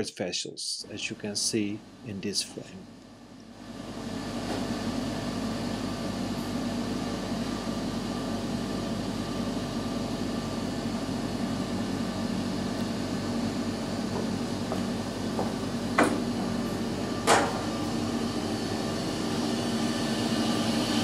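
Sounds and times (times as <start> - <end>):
processing machinery humming: 0.6 - 21.0.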